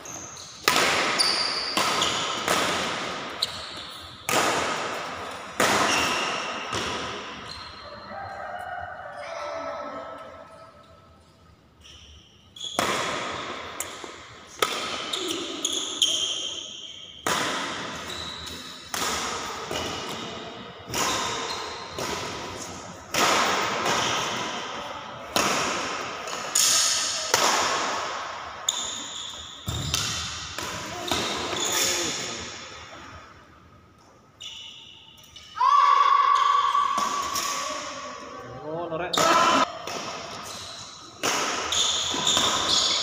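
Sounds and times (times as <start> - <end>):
rackets hitting shuttlecock: 0.1 - 7.5, 12.6 - 16.4, 17.2 - 32.6, 36.4 - 38.0, 39.2 - 43.0.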